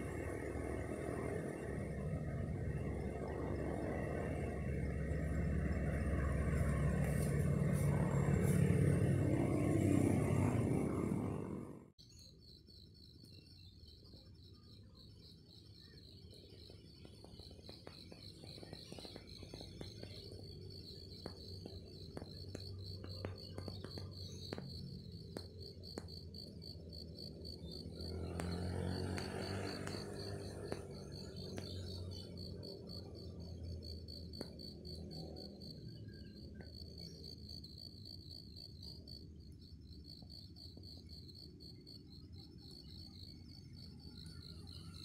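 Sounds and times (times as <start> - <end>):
low background rumble: 0.0 - 12.0
low hum: 0.0 - 12.0
insects chirping: 12.0 - 45.0.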